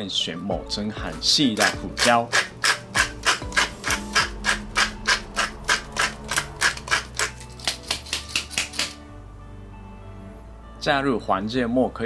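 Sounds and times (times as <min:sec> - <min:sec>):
pepper mill grinding: 0:01.4 - 0:09.0.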